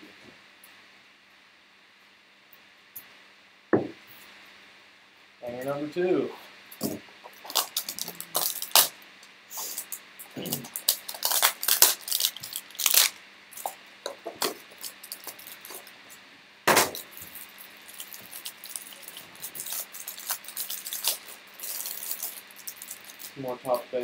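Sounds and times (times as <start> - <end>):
crackles and clicks: 6.7 - 24.0
plastic crinkling: 6.8 - 9.0, 9.6 - 16.0, 16.8 - 23.9.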